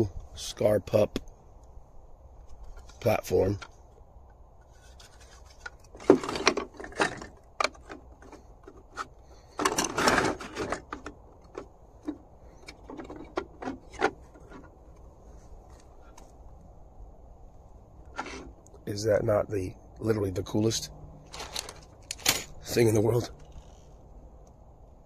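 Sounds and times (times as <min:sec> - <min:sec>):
plastic parts clacking on wood: 0:04.7 - 0:15.0, 0:21.3 - 0:22.6.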